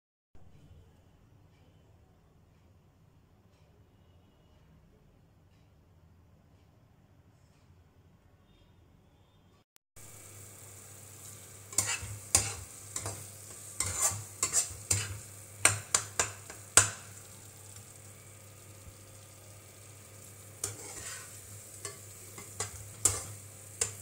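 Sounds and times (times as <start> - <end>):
metal spatula scraping pan: 11.2 - 17.4, 19.8 - 24.0.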